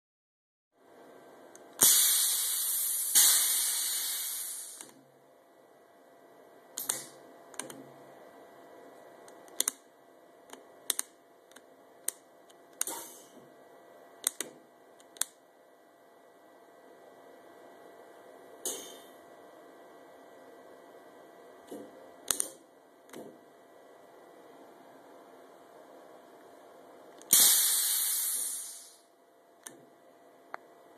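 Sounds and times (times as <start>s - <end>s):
air hissing through valves: 1.8s - 4.9s, 27.2s - 29.1s.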